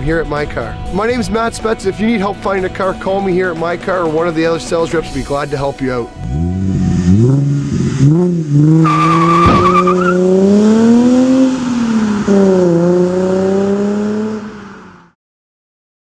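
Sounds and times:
car engine revving: 6.2 - 15.2
tire squeal: 8.6 - 10.5.

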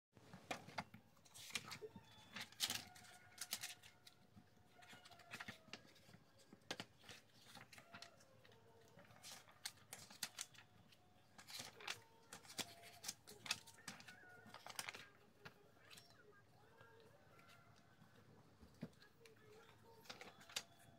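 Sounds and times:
paper pages rustling and flicking: 0.3 - 20.9.

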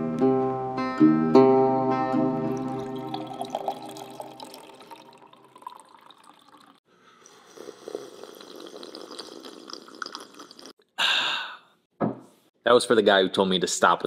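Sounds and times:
coffee pouring into a mug: 2.5 - 10.7
sipping from a mug: 2.5 - 10.9.

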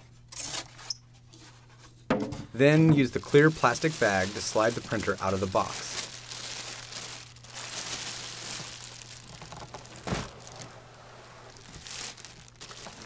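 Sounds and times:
plastic bag crinkling: 3.0 - 13.0.

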